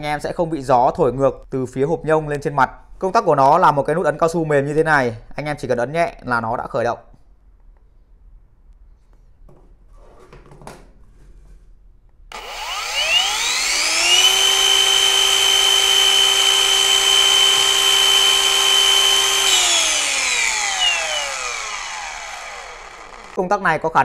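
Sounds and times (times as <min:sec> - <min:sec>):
wall chaser high whine: 0:12.3 - 0:23.4.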